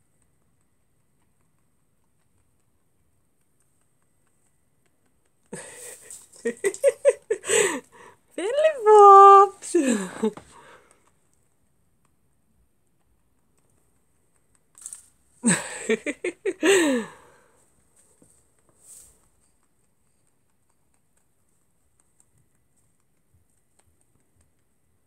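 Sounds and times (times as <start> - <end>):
person laughing: 5.6 - 10.6, 15.4 - 17.3
faint rustles: 17.1 - 19.6.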